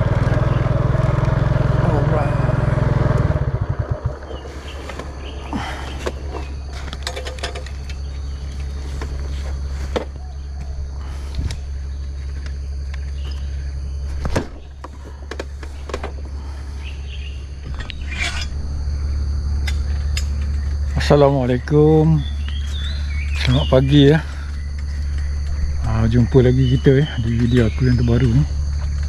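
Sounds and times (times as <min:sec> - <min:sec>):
small motorcycle engine running: 0:00.0 - 0:10.0, 0:14.7 - 0:29.0
knocks and rattles: 0:06.0 - 0:08.1.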